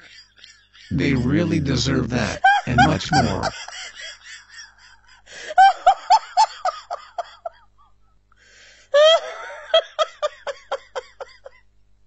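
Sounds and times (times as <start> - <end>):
high-pitched laughter: 2.3 - 7.6, 9.0 - 11.6.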